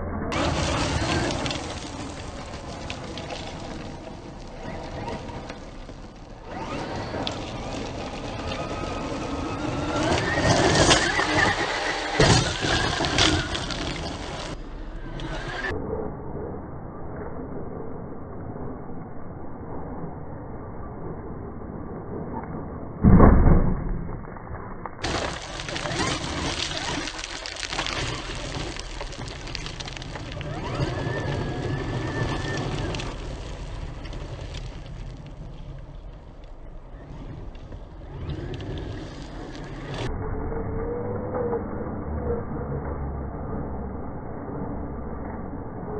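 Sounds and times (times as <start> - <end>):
tyres spraying gravel: 0.4 - 14.6, 25.0 - 36.3.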